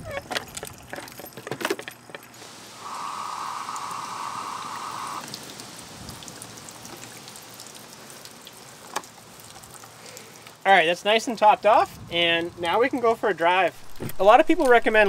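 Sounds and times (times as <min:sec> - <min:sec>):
water rushing from inlet: 0:02.4 - 0:10.6.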